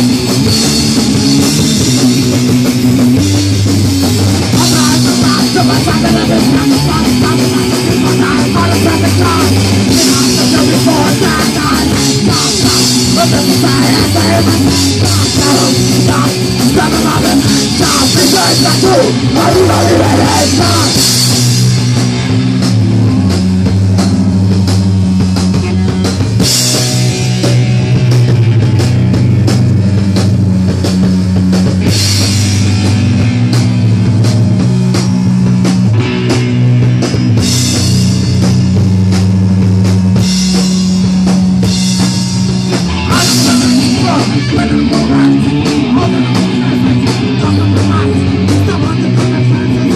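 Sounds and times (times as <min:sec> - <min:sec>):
punk band playing live: 0:00.0 - 0:49.9.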